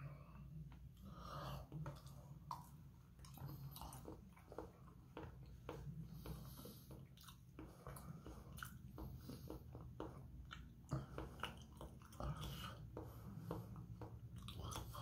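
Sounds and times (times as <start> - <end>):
wet chewing mouth smacks: 6.2 - 13.0.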